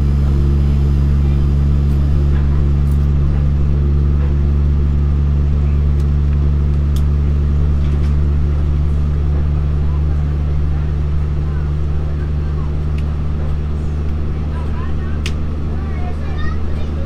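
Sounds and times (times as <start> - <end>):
diesel engine drone: 0.0 - 17.0.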